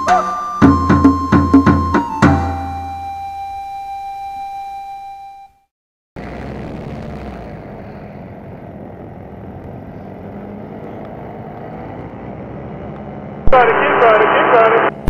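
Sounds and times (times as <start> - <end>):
paramotor engine and propeller: 6.2 - 13.5.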